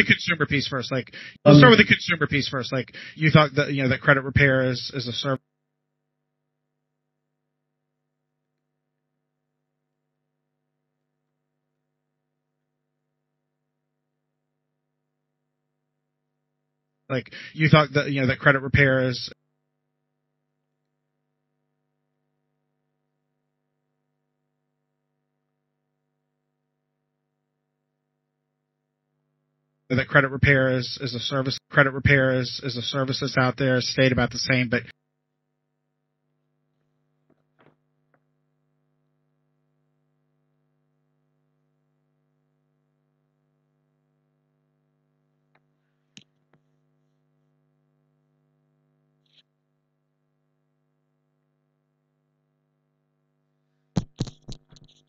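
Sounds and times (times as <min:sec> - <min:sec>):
faint electrical hum: 0:00.0 - 0:05.4, 0:17.1 - 0:19.4
computer mouse clicks: 0:54.0 - 0:55.0.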